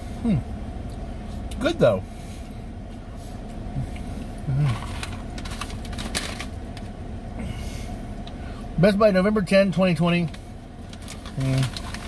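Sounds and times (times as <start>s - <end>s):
steady low hum: 0.0s - 12.0s
snack bag crinkling: 4.7s - 6.6s, 10.8s - 12.0s.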